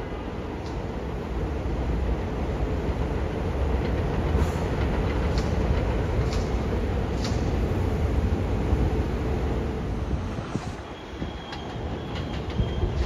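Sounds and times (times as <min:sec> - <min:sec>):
subway train rumbling: 0:00.0 - 0:13.0.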